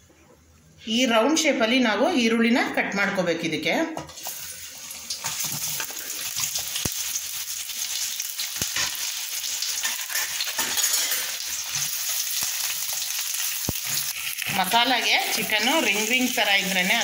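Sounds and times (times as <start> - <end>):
onions sizzling in hot oil: 4.2 - 17.0.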